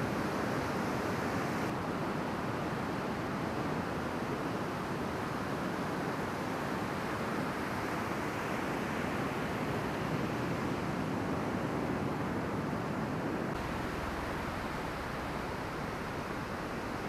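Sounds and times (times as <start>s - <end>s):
ocean waves breaking: 13.5s - 17.0s.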